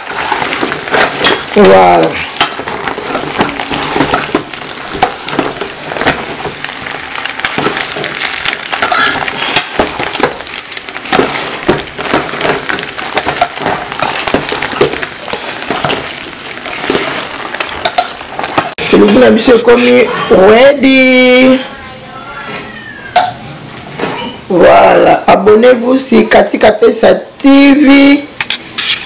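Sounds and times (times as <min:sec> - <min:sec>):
pasta being stirred: 0:00.0 - 0:20.4
metal spoon scraping pot: 0:07.4 - 0:19.2.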